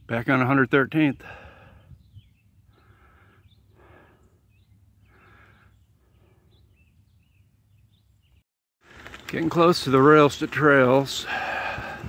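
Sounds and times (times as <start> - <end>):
faint quick breathing: 1.2 - 2.0, 2.7 - 4.4, 11.3 - 12.0
bird chirps: 1.7 - 8.4.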